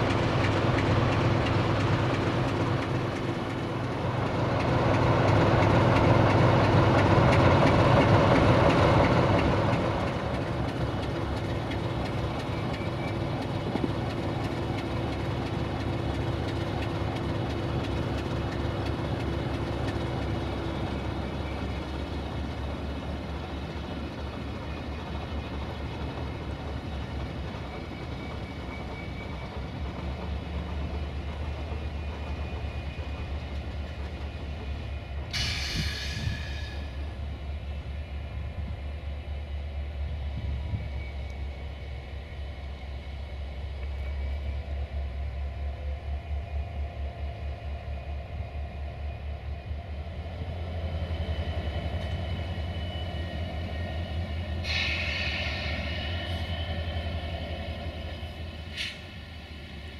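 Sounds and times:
locomotive engine droning: 0.0 - 59.9
short air hisses: 35.3 - 37.0, 54.5 - 57.4, 58.7 - 59.2.

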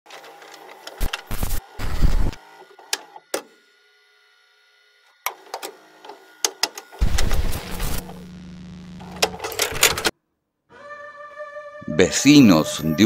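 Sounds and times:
static crackles and clicks: 0.8 - 2.4, 6.5 - 10.1
burst of noise: 7.0 - 9.2
low electrical hum: 7.0 - 10.1.

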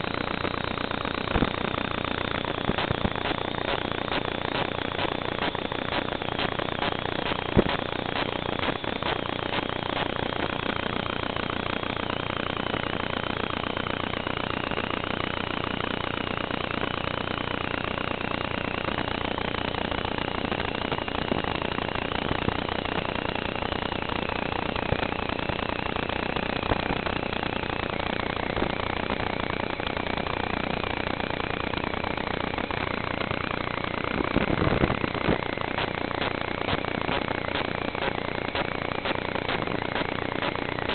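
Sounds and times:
buzzing hiss with drifting tones: 1.3 - 10.6, 34.2 - 40.9.

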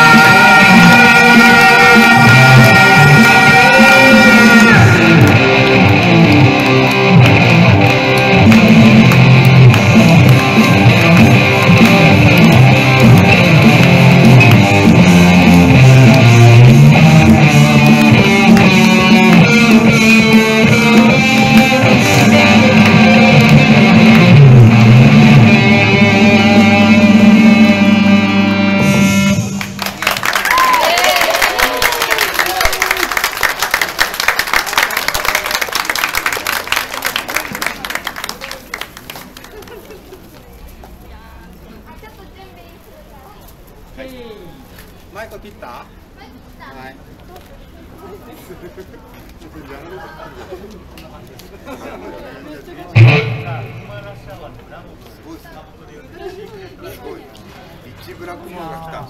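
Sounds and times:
low bass line: 0.0 - 29.6
electric guitar rock music: 0.0 - 29.7, 53.0 - 54.3.

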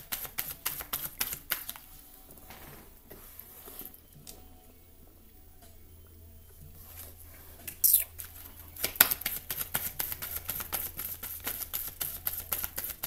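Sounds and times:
cards clicking and slapping: 0.0 - 1.9, 7.7 - 13.0
cards swishing: 0.0 - 1.9, 7.0 - 13.0.

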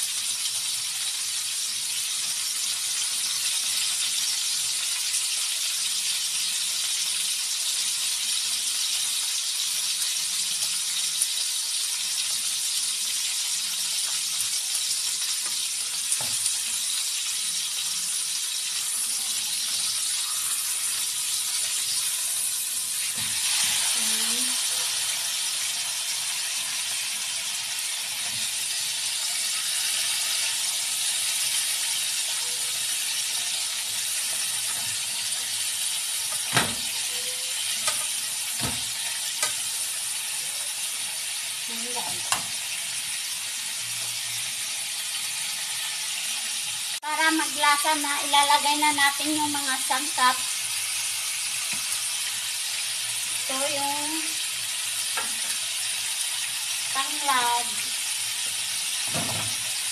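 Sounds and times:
chicken sizzling in oil: 0.0 - 59.9.

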